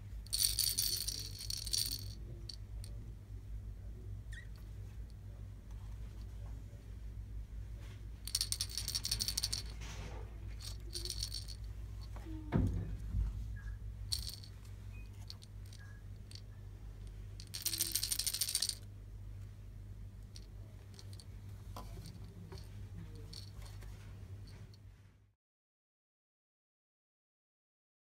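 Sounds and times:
toy rattle shaken: 0:00.2 - 0:03.0, 0:08.2 - 0:09.8, 0:10.5 - 0:12.2, 0:14.1 - 0:18.8, 0:20.3 - 0:23.8.

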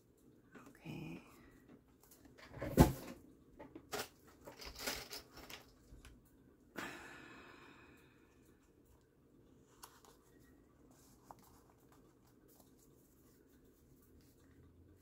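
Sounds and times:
paper pages rustling: 0:09.7 - 0:14.6.

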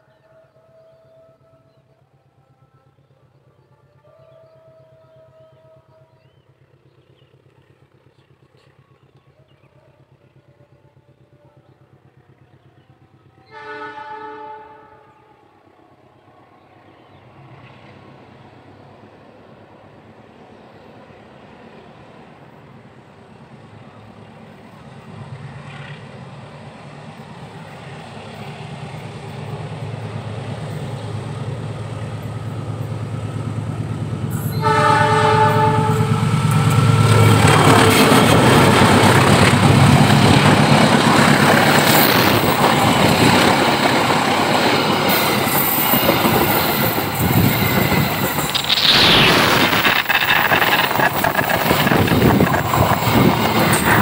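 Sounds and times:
train horn: 0:13.2 - 0:15.7, 0:34.3 - 0:39.0
locomotive engine drone: 0:22.4 - 0:54.0
train wheels clattering on rails: 0:36.2 - 0:54.0.

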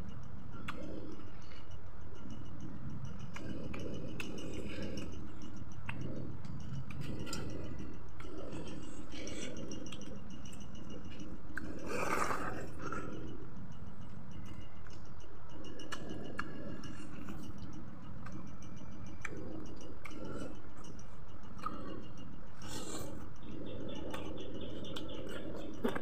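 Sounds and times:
low rumbling haze: 0:00.0 - 0:26.0
close-up chewing: 0:00.5 - 0:26.0
wet mouth clicks and smacks: 0:05.8 - 0:10.6.

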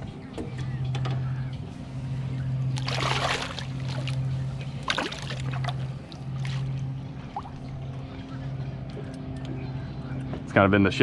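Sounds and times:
steady low hum: 0:00.0 - 0:11.0
fish splashing at water surface: 0:02.8 - 0:07.7.

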